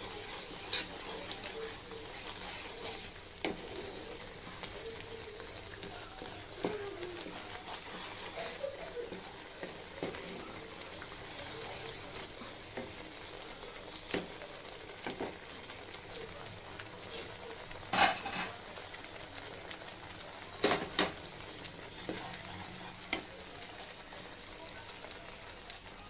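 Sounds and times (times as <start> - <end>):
wooden spatula scraping pan: 0.0 - 15.6
gravy sizzling and bubbling: 0.0 - 26.0.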